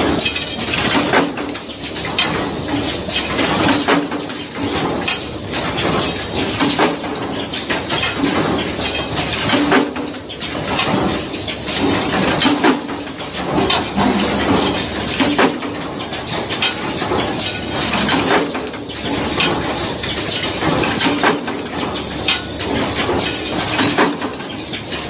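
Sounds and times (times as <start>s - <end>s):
machine metallic clanks: 0.0s - 25.0s
pitched machine hum: 11.8s - 16.5s.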